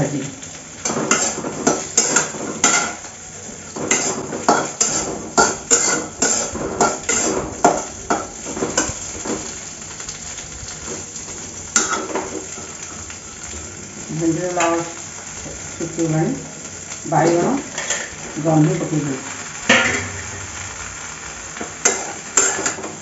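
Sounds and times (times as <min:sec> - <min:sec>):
oil sizzling: 0:00.0 - 0:23.0
metal spatula scraping pan: 0:03.9 - 0:07.8.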